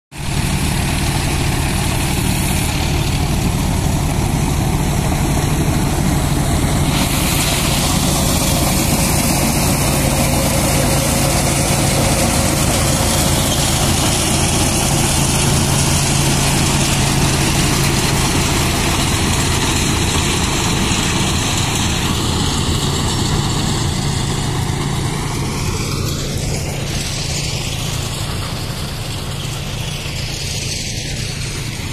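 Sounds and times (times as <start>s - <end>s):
tractor engine running under load: 0.2s - 31.9s
straw reaper blowing straw hiss: 0.3s - 23.8s.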